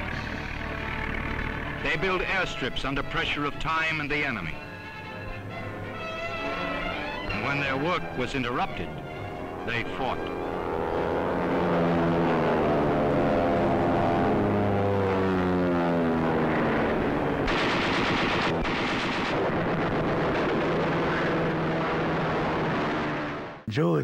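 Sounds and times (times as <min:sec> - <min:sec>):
propeller aircraft engines droning: 0:00.0 - 0:23.7
gunfire bursts: 0:17.4 - 0:23.3.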